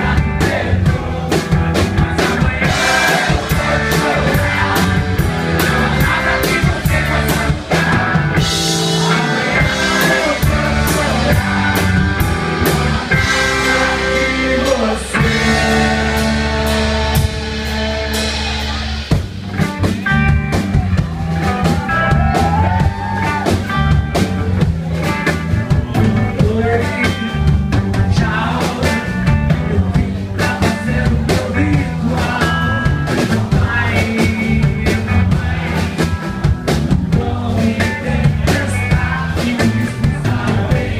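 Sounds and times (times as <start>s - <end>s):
man singing: 0.0s - 17.4s, 25.9s - 36.1s, 37.1s - 40.9s
bass guitar: 0.0s - 40.9s
drum kit: 0.0s - 40.9s
electric guitar: 0.0s - 40.9s.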